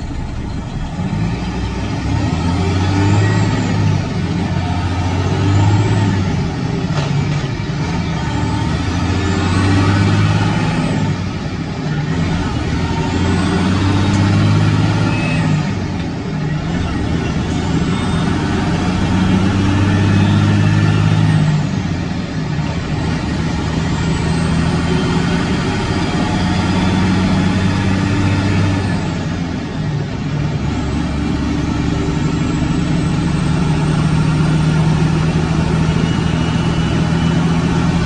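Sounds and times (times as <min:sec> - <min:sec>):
diesel truck engine running: 0:00.0 - 0:38.0.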